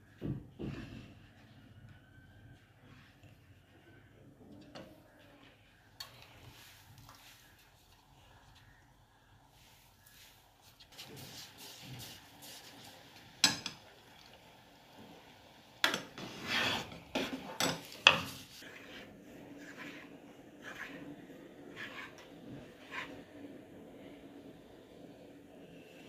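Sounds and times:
ladle scraping a steel pot: 15.9 - 21.0, 21.7 - 23.2.

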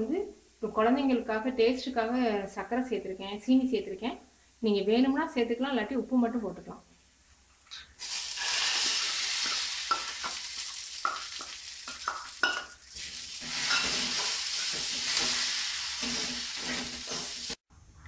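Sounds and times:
batter sizzling in hot oil: 8.0 - 17.6
spoon scraping pan: 13.4 - 17.6.

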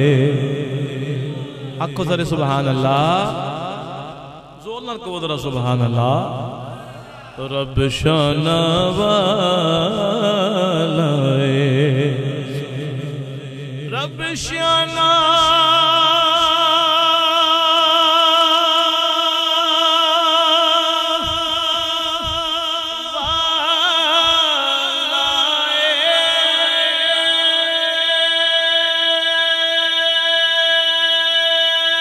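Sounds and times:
man reciting through microphone: 0.0 - 32.0.

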